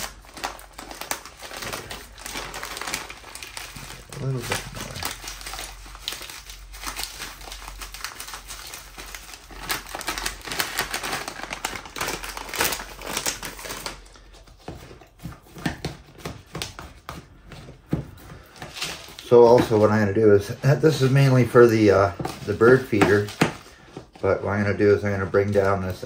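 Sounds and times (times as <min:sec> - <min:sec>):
bird seed bag crinkling: 0:00.0 - 0:14.0.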